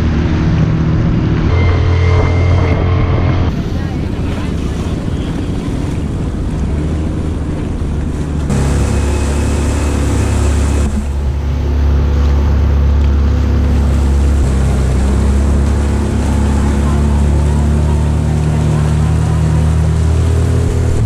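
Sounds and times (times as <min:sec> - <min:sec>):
motorboat engine running: 0:00.0 - 0:21.0
water rushing past hull: 0:00.0 - 0:21.0.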